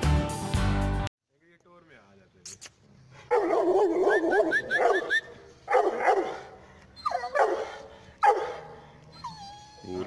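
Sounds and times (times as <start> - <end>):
dog barking and whining: 3.3 - 10.0.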